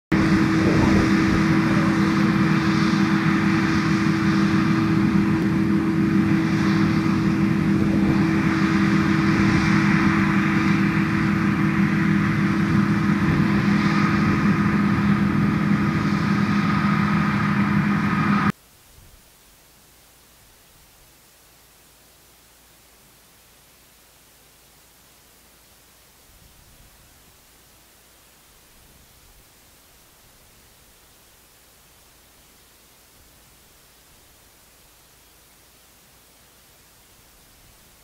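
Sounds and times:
combine harvester drone: 0:00.1 - 0:18.6.

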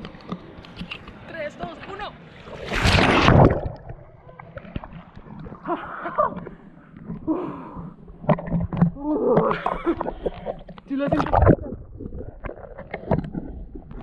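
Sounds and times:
water sloshing: 0:02.0 - 0:14.0
loud splash into water: 0:02.5 - 0:04.1.

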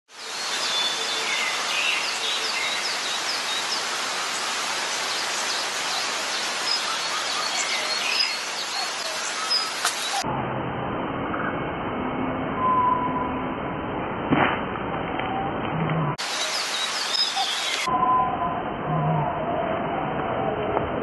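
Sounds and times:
small birds chirping: 0:00.1 - 0:10.2, 0:16.2 - 0:17.9
steady outdoor hiss: 0:00.1 - 0:12.4, 0:13.5 - 0:20.0.

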